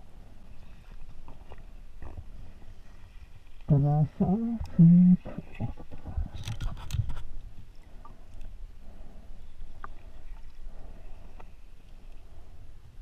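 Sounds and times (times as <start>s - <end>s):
faint ticks: 9.7s - 10.6s.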